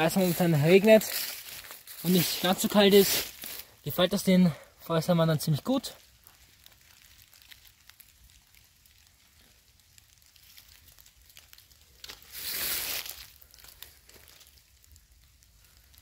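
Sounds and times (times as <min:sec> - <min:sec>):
leaves rustling: 0:00.0 - 0:16.0
rain dripping on leaves: 0:00.0 - 0:16.0.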